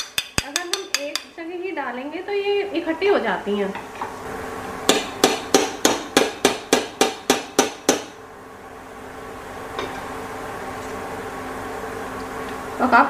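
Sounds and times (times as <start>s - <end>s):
metal ladle tapping: 0.0s - 1.4s.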